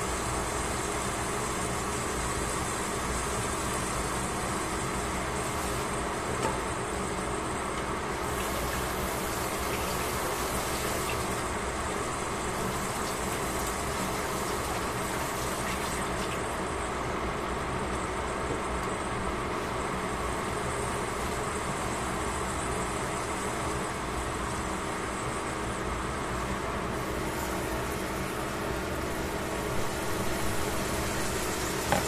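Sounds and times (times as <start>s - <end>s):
beef sizzling in a pan: 8.2s - 11.6s, 12.2s - 16.4s.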